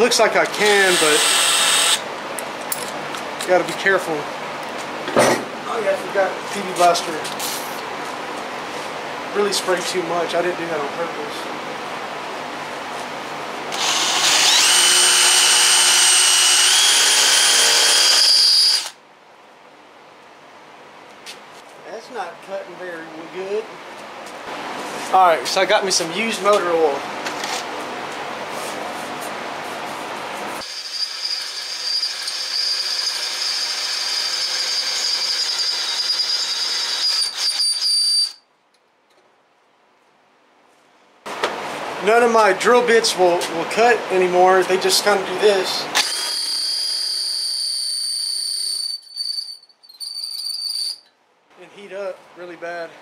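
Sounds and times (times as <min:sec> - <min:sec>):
cordless drill boring into steel: 0:00.6 - 0:02.0, 0:13.7 - 0:19.0, 0:30.6 - 0:38.4, 0:46.0 - 0:51.0
high squeal of drill bit: 0:00.8 - 0:02.0, 0:13.8 - 0:18.9, 0:30.6 - 0:38.4, 0:46.0 - 0:51.1.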